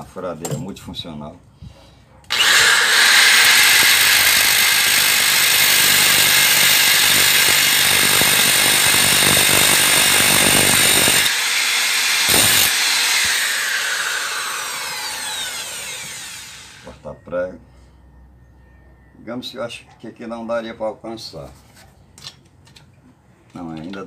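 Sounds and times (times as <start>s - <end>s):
drill with cutting disc grinding: 2.3s - 17.0s
motor winding down: 2.3s - 17.0s.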